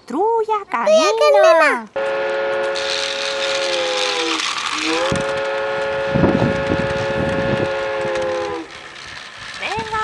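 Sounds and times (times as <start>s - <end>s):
train whistle chord: 2.0s - 8.7s
rattle: 2.0s - 10.0s.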